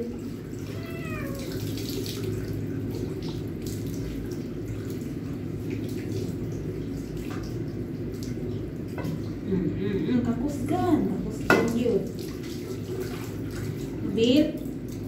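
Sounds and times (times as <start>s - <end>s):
tap water splashing: 0.0s - 9.4s, 11.3s - 15.0s
cat meowing: 0.6s - 1.8s.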